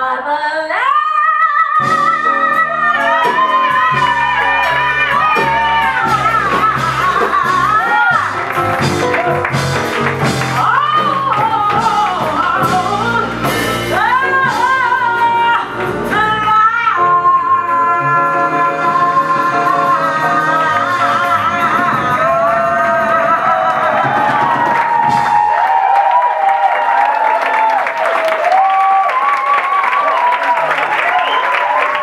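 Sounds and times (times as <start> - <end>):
live band bass line: 1.8 - 26.2.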